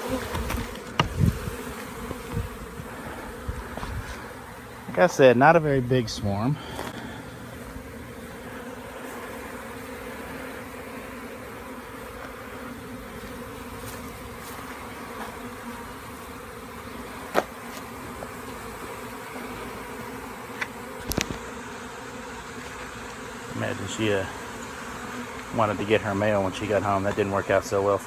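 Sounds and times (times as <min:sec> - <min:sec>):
bee swarm buzzing: 0:00.0 - 0:28.0.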